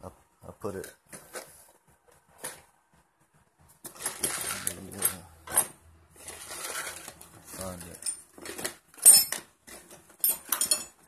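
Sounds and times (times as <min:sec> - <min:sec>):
metal parts clinking and rattling: 0:03.8 - 0:11.0.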